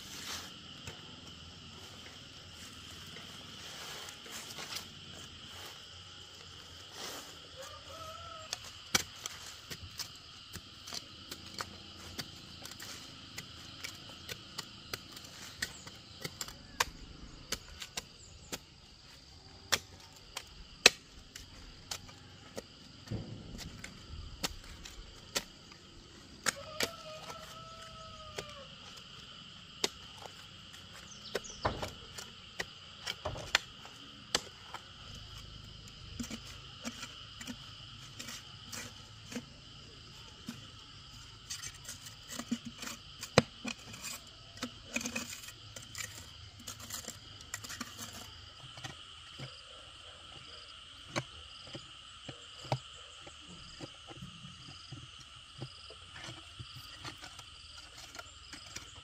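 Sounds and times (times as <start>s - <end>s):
insects chirring: 0.0s - 59.0s
hand hoe chopping soil and stones: 7.5s - 49.6s.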